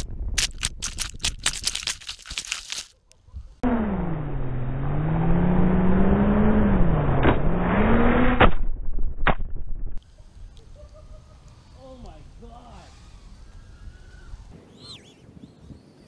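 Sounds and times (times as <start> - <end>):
quadcopter motors whining: 10.0 - 15.1.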